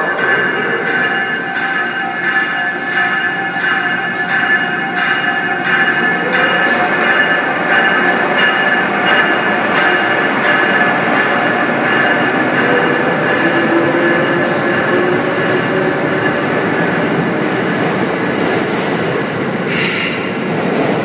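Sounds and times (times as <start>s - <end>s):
train rumble: 0.0s - 21.0s
train wheels squealing: 17.7s - 21.0s.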